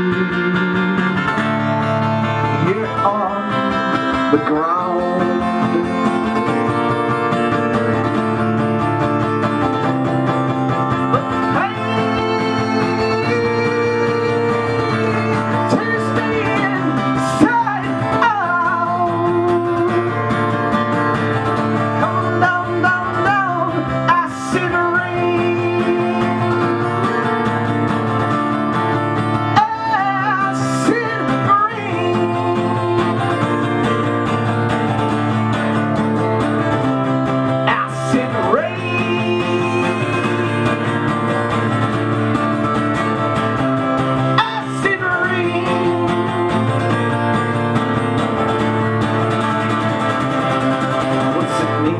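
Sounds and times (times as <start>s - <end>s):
man singing into a microphone: 0.0s - 8.4s, 10.8s - 34.7s, 37.2s - 42.4s, 44.0s - 48.2s, 49.6s - 51.9s
acoustic guitar strumming: 0.0s - 51.9s.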